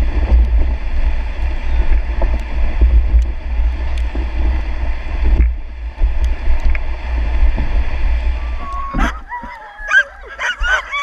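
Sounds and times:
wind on microphone: 0.0s - 11.0s
sled dogs whining and howling: 8.3s - 11.0s.

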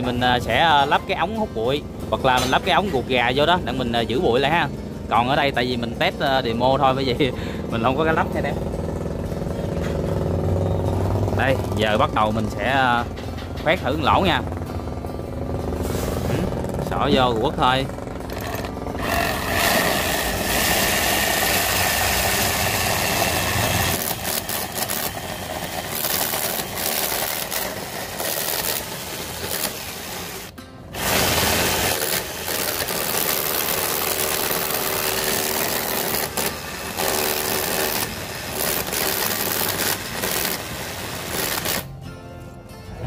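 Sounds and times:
rotary hammer core drilling wall: 11.4s - 41.9s.

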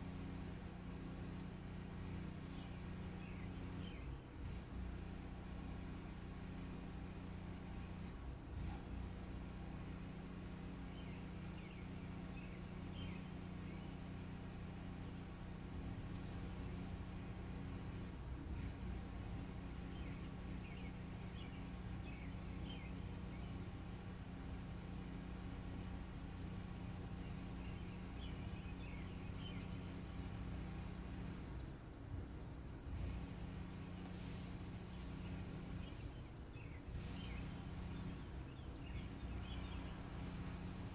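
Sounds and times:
low electrical hum: 0.0s - 40.9s
faint bird chirps: 10.7s - 14.3s, 19.4s - 32.1s, 33.0s - 40.9s.

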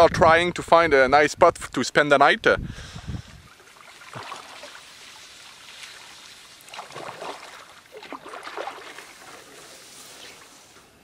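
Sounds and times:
paddle swishing through water: 2.9s - 11.0s.

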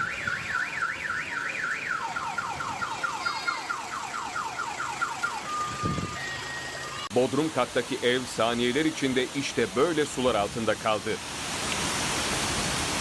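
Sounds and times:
car alarm: 0.0s - 7.1s.

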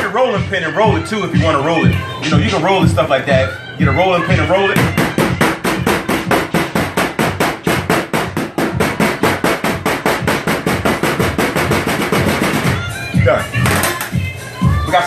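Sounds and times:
meat tenderizer pounding crackers: 4.8s - 12.6s.

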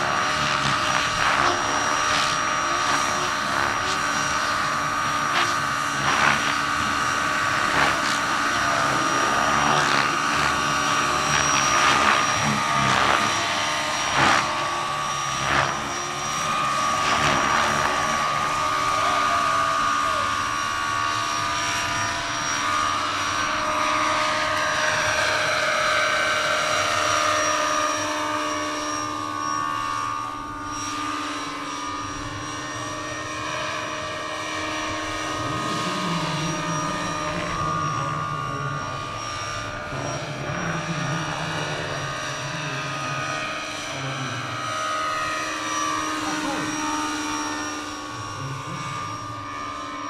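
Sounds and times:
low buzz: 0.0s - 50.0s
model helicopter rotors whining: 0.0s - 50.0s.

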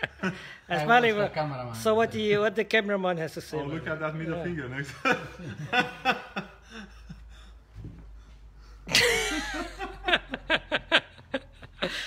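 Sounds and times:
men laughing: 0.0s - 0.8s, 4.8s - 7.8s, 8.8s - 12.0s.

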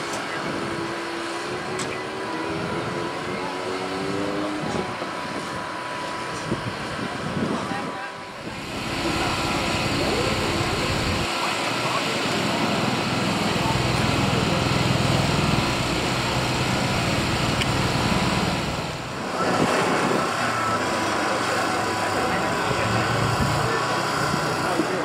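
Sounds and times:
engine idling: 8.2s - 25.0s.

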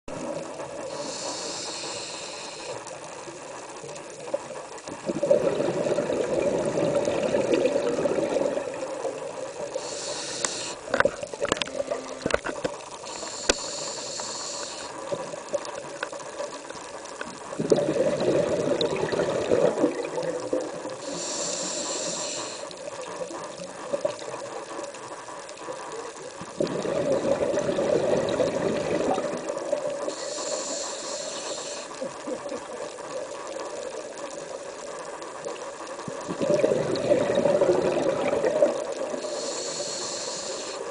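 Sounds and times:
hissing regulator inhales: 0.9s - 3.0s, 9.7s - 11.0s, 13.0s - 15.0s, 21.0s - 22.8s, 30.0s - 32.1s, 39.1s - 40.9s
bubbling underwater exhales: 4.9s - 15.9s, 17.4s - 24.4s, 26.2s - 34.6s, 36.0s - 40.9s.

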